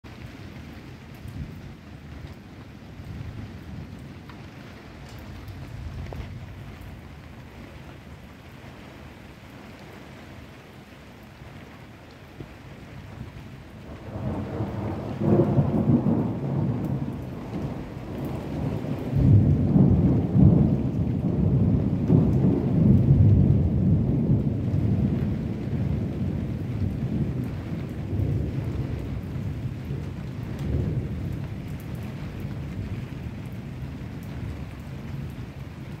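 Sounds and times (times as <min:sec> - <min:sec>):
steady rain: 0:00.0 - 0:36.0
thunder rolling: 0:13.9 - 0:33.0.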